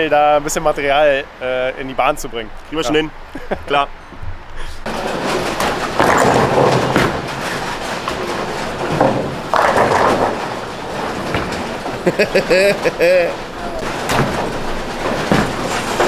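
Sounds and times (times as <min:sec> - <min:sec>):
bowling pins clattering: 0:04.8 - 0:16.0
bowling balls rolling: 0:04.9 - 0:16.0
loud crashes of pins: 0:04.9 - 0:16.0.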